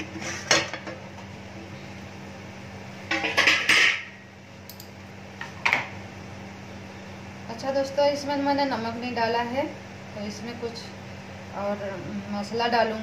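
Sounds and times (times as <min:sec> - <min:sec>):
metal lid clattering: 0:03.1 - 0:04.1.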